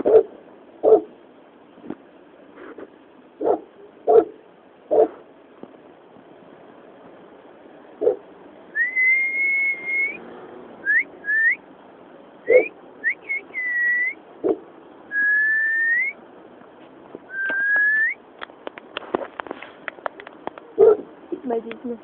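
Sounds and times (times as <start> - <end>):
dog yelping: 0.0 - 1.1, 3.4 - 5.2, 8.0 - 8.2, 12.5 - 12.8, 20.7 - 21.1
dog whining: 12.5 - 12.7.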